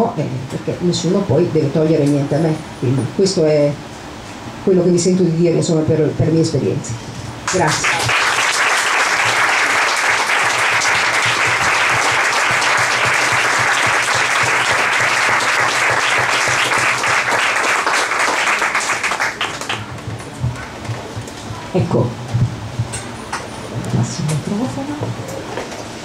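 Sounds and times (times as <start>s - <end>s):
audience applauding: 7.5s - 20.5s.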